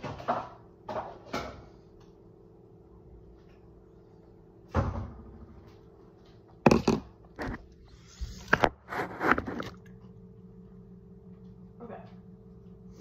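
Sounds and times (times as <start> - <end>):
kitchen items knocking and clunking: 0.0 - 1.8, 6.6 - 7.6.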